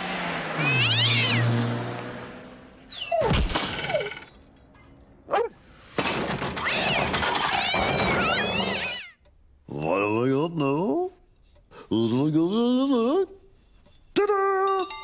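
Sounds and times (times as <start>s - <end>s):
cat yowling: 0.6s - 1.5s.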